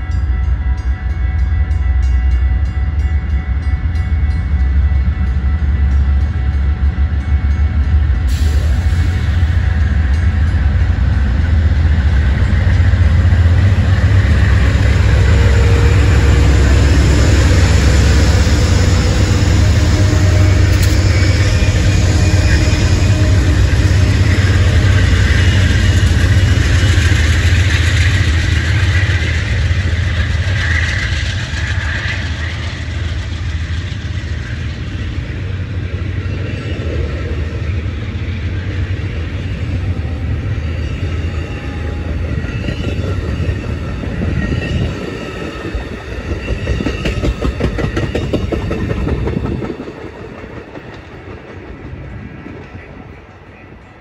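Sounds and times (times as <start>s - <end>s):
diesel locomotive rumble: 0.0s - 54.0s
train wheels clattering over rail joints: 44.8s - 53.1s.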